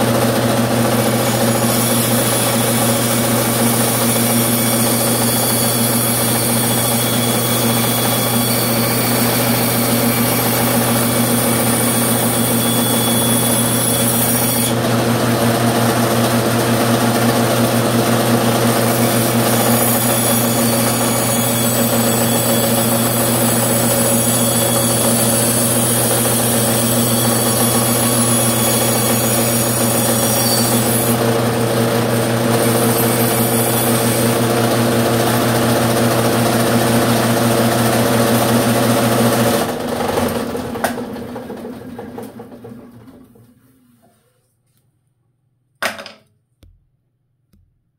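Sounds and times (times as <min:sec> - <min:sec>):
bandsaw cutting wood: 0:00.0 - 0:41.0.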